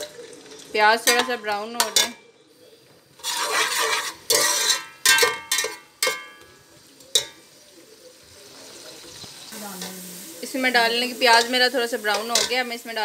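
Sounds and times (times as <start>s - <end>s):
frying oil sizzling: 0.0s - 13.0s
metal spoon clanking on pot: 1.0s - 2.2s, 3.2s - 7.4s, 11.4s - 12.7s.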